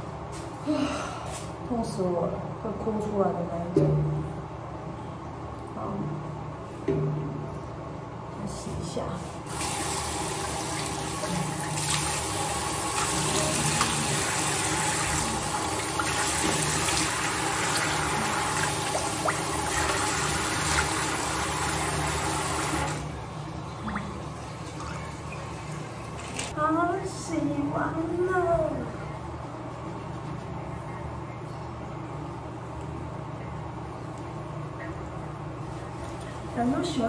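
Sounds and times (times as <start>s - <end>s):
sink tap running: 9.5s - 23.1s.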